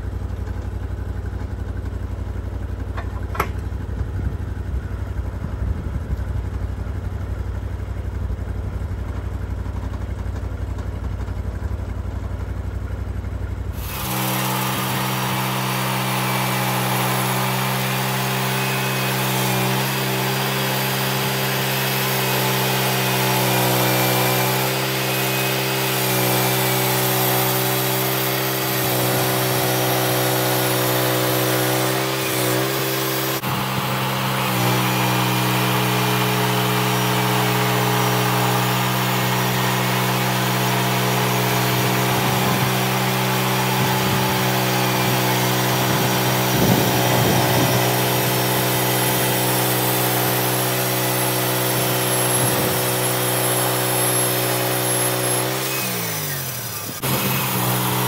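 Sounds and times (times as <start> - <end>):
sawmill engine rumbling: 0.0 - 58.0
band saw blade cutting log: 2.9 - 3.7, 13.8 - 58.0.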